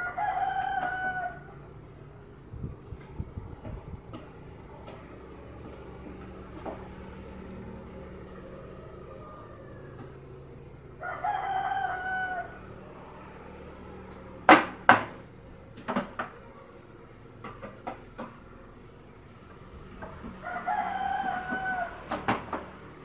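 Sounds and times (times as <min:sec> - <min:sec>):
rooster crowing: 0:00.0 - 0:02.4, 0:05.2 - 0:14.4, 0:18.8 - 0:23.0
loud sharp knocks: 0:14.5 - 0:15.2, 0:21.2 - 0:22.7.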